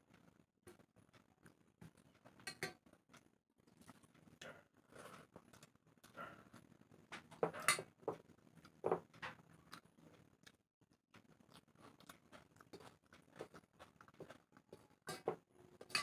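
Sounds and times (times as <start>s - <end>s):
wet chewing: 3.1s - 4.4s, 8.1s - 15.9s.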